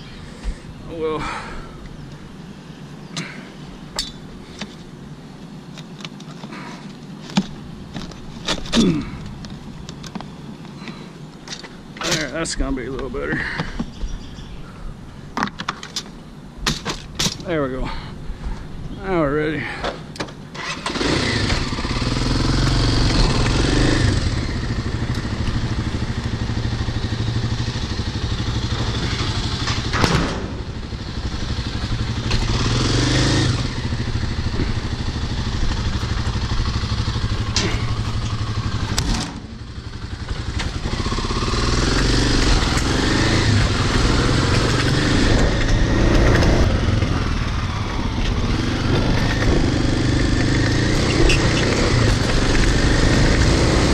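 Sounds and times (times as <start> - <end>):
dirt bike engine revving: 20.6 - 53.9.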